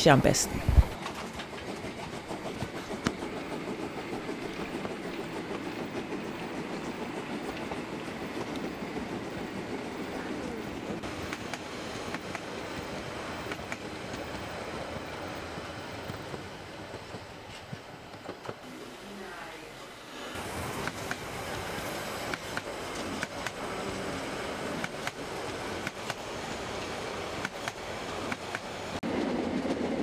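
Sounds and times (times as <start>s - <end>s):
model train rattling on rails: 0.9s - 30.0s.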